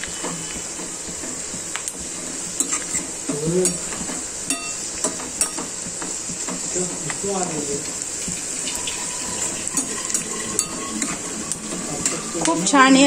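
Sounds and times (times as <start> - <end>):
onions sizzling in oil: 0.0 - 13.0
metal spoon scraping pan: 2.6 - 4.8, 8.5 - 13.0.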